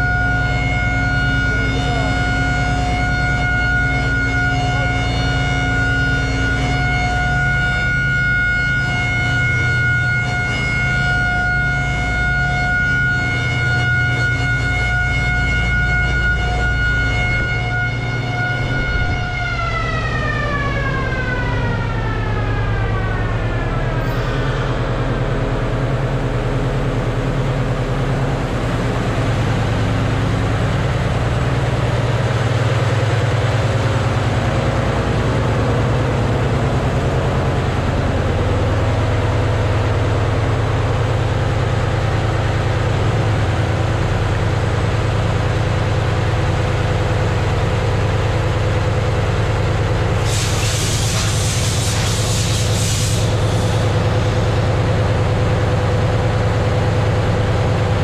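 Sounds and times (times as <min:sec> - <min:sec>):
engine room machinery hum: 0:00.0 - 0:58.0
falling whine: 0:16.0 - 0:58.0.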